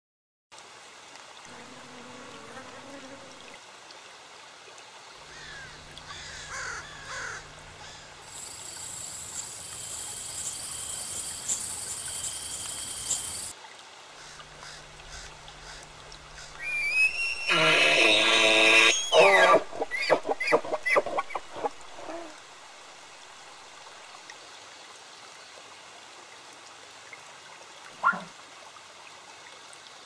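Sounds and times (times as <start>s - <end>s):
steady high-pitched hiss: 5.0s - 13.6s
bird calls with gliding notes: 15.1s - 22.3s.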